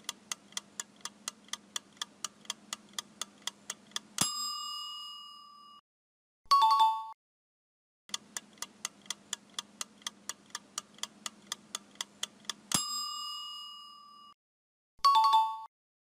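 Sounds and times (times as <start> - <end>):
clock ticking: 0.0 - 4.5, 8.1 - 13.2
bell ding: 4.2 - 5.8, 12.8 - 14.4, 15.1 - 15.7.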